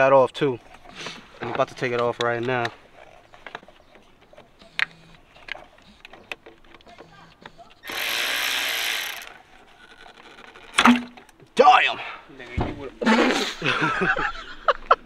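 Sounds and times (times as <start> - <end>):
cordless ratchet running: 4.6 - 10.8.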